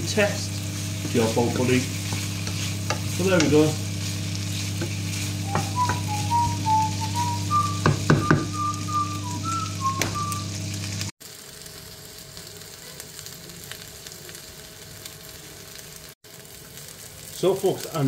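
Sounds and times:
chicken sizzling in a pan: 0:00.0 - 0:18.0
person whistling a tune: 0:05.4 - 0:10.5
spatula knocking against pan: 0:07.8 - 0:08.5.

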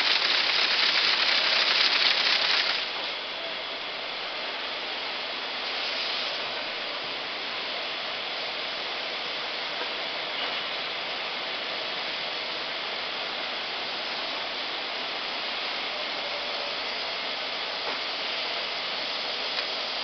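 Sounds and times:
braiding machines running: 0:00.0 - 0:07.0.

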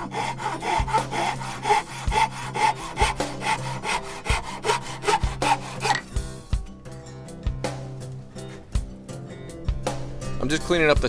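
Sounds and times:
handsaw cutting wood: 0:00.0 - 0:06.1.

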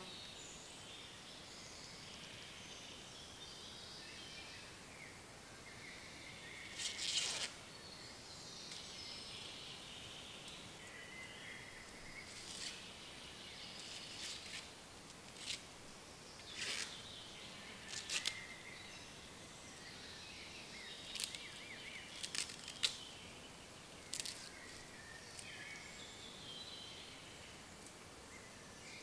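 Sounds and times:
birds singing: 0:00.0 - 0:14.7, 0:16.0 - 0:29.0
corn husks ripping: 0:06.8 - 0:07.6, 0:17.9 - 0:18.4, 0:21.1 - 0:21.5, 0:22.1 - 0:23.0, 0:24.0 - 0:25.5.

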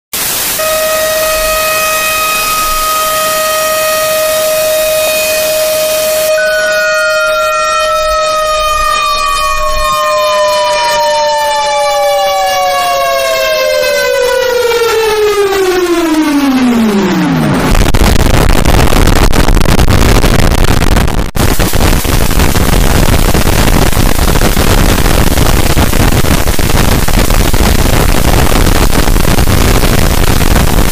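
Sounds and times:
loud harsh static: 0:00.2 - 0:30.9
reversed alarm siren tones: 0:00.6 - 0:18.1.

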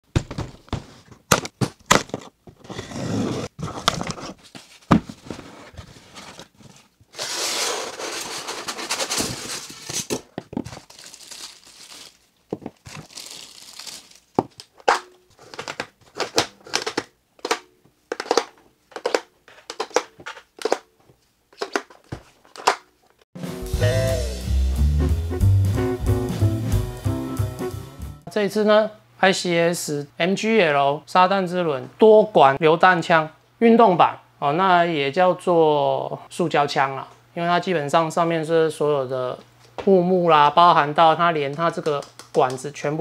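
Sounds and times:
plastic items clicking and knocking: 0:00.1 - 0:02.6, 0:08.6 - 0:11.0, 0:14.3 - 0:22.9, 0:41.5 - 0:42.7
plastic bags crinkling: 0:06.4 - 0:17.0
packing tape tearing: 0:07.1 - 0:20.9.

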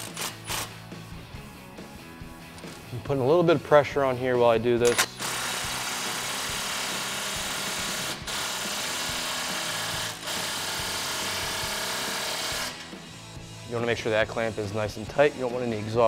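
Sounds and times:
cordless impact wrench running: 0:00.0 - 0:00.7, 0:04.9 - 0:13.2.

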